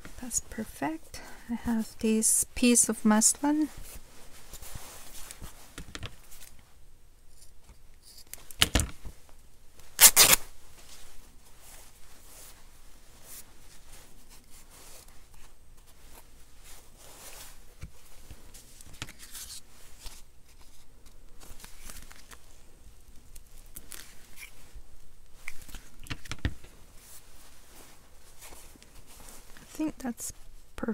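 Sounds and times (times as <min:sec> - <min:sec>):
paper rustling and sliding: 0:13.2 - 0:22.4.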